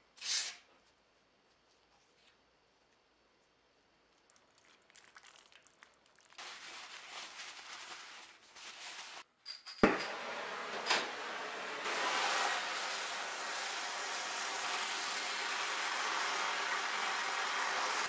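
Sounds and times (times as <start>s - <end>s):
paper towel rubbing: 6.4s - 9.2s
gas torch hissing: 11.8s - 18.0s.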